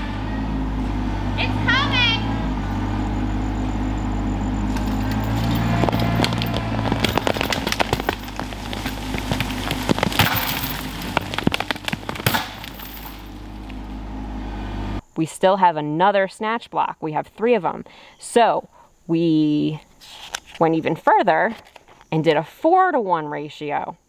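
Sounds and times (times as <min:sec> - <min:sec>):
tractor diesel engine running: 0:00.0 - 0:15.0
wood and roots cracking: 0:04.7 - 0:13.8.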